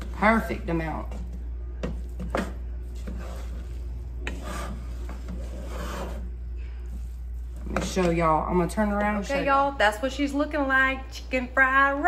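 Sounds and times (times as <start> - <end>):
spoon scraping a pot: 1.1 - 8.2.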